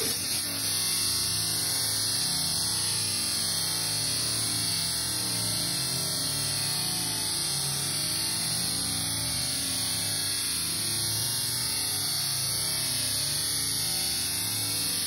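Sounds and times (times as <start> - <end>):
grooming dryer blowing air: 0.0 - 3.4.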